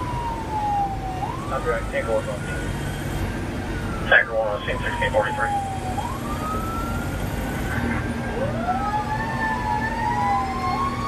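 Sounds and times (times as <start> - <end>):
sirens wailing: 0.0 - 11.0
truck engine and tyres rumbling: 0.0 - 11.0.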